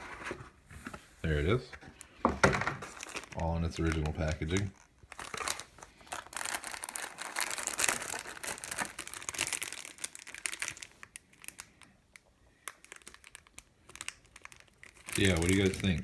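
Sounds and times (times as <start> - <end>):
plastic bags crinkling: 2.7 - 12.0, 12.6 - 16.0.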